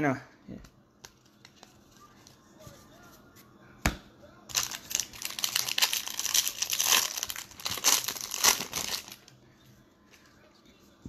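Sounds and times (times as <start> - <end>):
foil wrapper crinkling: 4.5 - 9.3.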